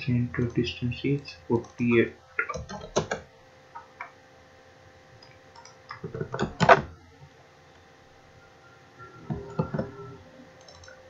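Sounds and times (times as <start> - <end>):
keyboard and mouse clicks: 1.6 - 3.2, 5.2 - 6.9, 9.3 - 10.0, 10.6 - 11.0.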